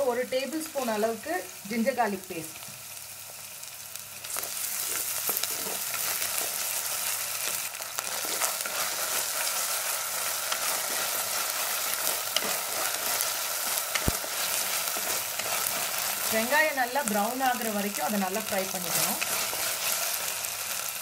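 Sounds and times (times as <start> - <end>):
onions sizzling in oil: 0.0 - 21.0
spatula scraping pot: 4.7 - 6.6, 8.0 - 16.5, 18.7 - 20.2.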